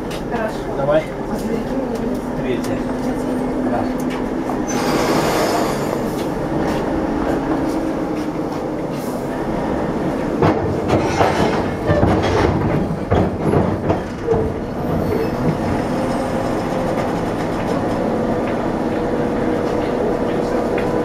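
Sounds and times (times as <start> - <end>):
diesel locomotive engine running: 0.0 - 21.0
heavy metallic clanks: 10.4 - 15.7.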